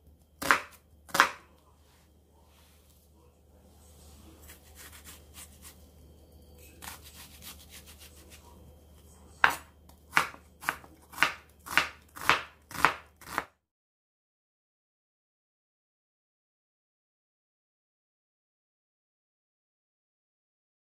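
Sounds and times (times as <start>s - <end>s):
knife chopping on cutting board: 0.4s - 1.5s, 4.4s - 5.8s, 6.8s - 8.4s, 9.4s - 13.5s
knife slicing onion: 0.4s - 1.5s, 4.4s - 5.8s, 6.6s - 8.5s, 9.4s - 13.5s.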